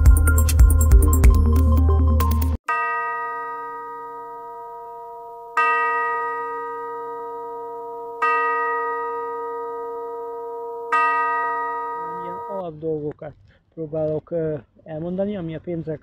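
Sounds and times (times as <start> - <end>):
electronic music: 0.0 - 2.6
bell-like chime ringing: 2.7 - 12.6.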